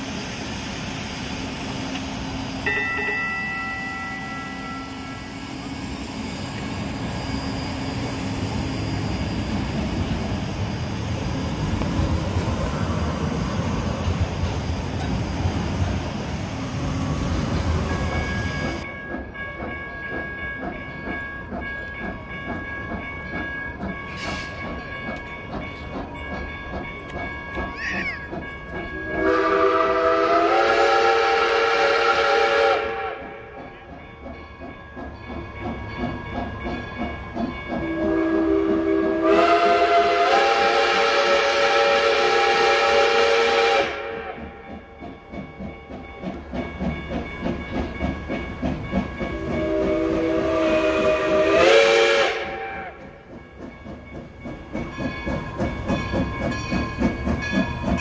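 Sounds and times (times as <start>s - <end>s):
light-rail train rumbling past: 0.0s - 58.0s
steam whistle blasts: 29.0s - 33.5s, 37.8s - 44.5s, 49.3s - 53.1s.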